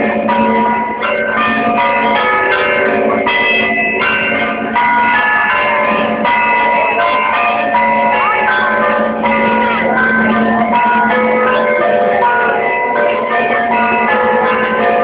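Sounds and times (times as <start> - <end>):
church bells ringing: 0.0 - 15.0.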